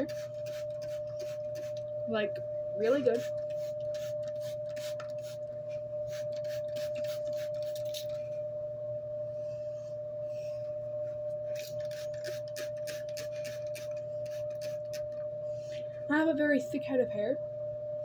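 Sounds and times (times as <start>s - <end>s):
spray bottle squirting: 0.0s - 1.8s, 3.2s - 5.4s, 6.1s - 8.2s, 11.6s - 15.2s
steady tonal hum: 0.0s - 18.0s.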